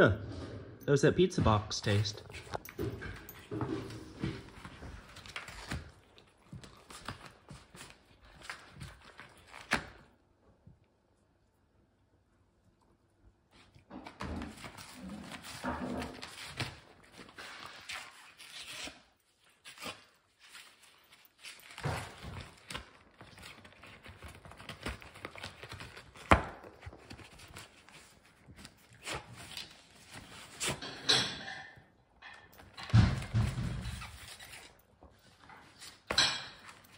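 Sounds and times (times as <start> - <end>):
cardboard crinkling and scraping: 1.8 - 10.0, 14.1 - 31.0
puppy chewing cardboard box: 4.4 - 10.2, 13.6 - 30.8.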